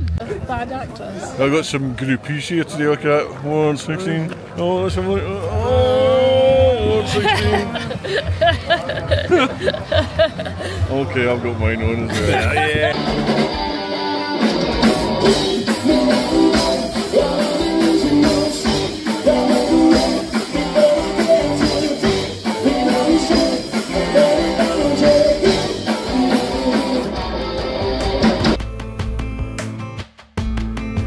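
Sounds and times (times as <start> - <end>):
live rock band playing: 12.9 - 31.0.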